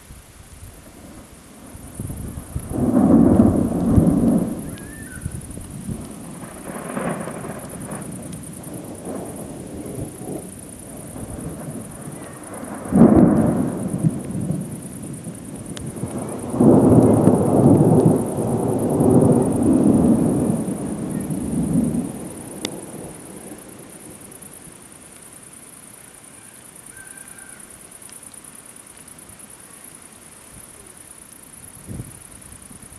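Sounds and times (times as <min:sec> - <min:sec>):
thunder clap and rumble: 0:00.9 - 0:24.4.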